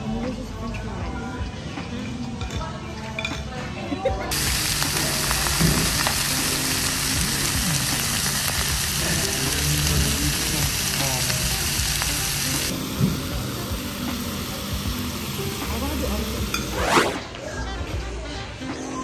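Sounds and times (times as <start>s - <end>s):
steak sizzling on hot plate: 4.3s - 16.8s.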